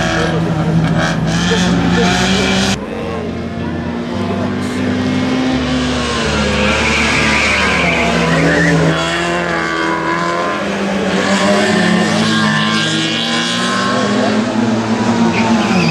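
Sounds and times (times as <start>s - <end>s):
tyres squealing: 0.0s - 10.3s
racing car engine revving: 0.0s - 15.9s.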